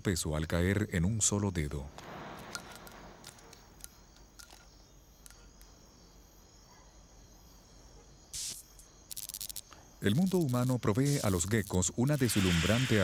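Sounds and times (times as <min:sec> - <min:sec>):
faint background hiss: 0:00.0 - 0:13.0
short burst of high hiss: 0:08.4 - 0:08.6, 0:12.2 - 0:13.0.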